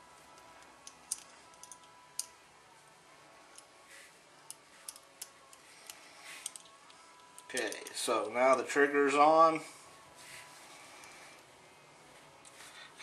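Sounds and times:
small metal parts clicking: 0:00.3 - 0:02.4, 0:04.4 - 0:08.6.

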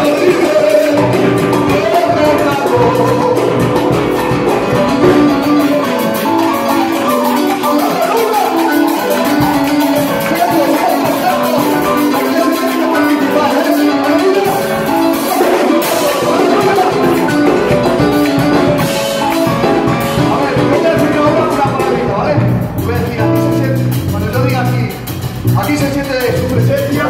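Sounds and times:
drum kit beat: 0:00.0 - 0:27.0
electronic keyboard playing: 0:00.0 - 0:27.0.

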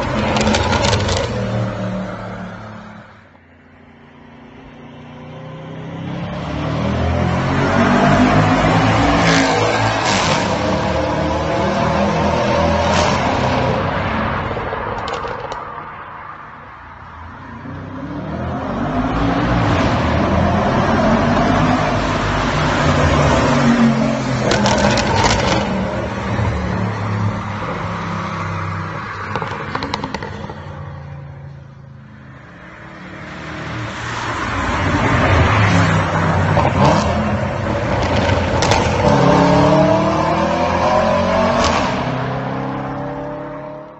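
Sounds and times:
exhaust crackles and pops: 0:00.0 - 0:01.4, 0:29.3 - 0:30.7.

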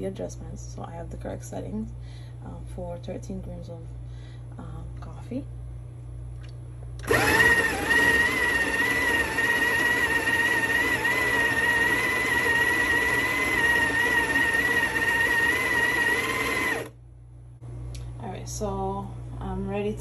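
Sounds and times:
coffee grinder motor whine: 0:07.0 - 0:16.9.

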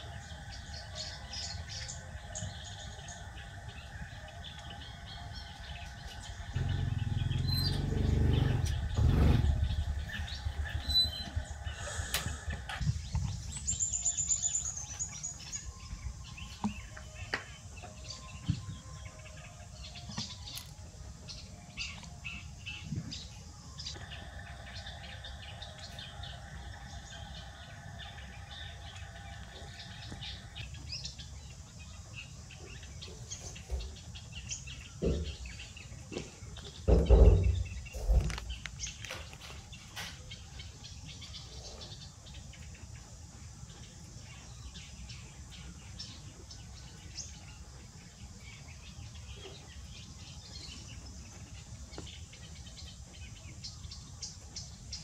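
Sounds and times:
birds chirping: 0:00.0 - 0:55.0
low rumble: 0:06.3 - 0:13.4
loud dull thumps: 0:36.9 - 0:38.5.

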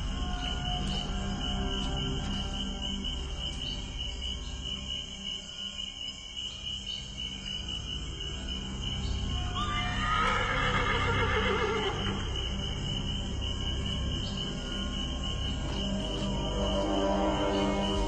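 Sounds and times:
horse whinnying: 0:09.7 - 0:12.2.

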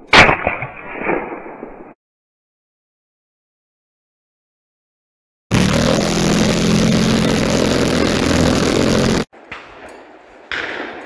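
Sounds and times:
quad bike engine running: 0:05.5 - 0:09.3.

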